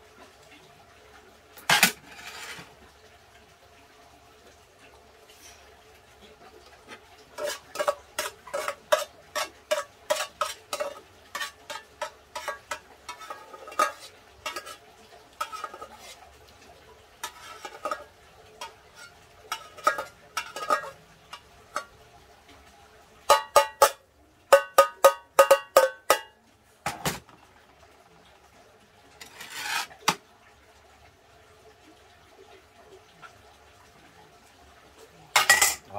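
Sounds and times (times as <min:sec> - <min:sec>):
metal spoon scraping a pot: 0:01.6 - 0:02.7, 0:07.4 - 0:14.8, 0:15.4 - 0:16.2, 0:17.2 - 0:21.9, 0:29.2 - 0:30.2.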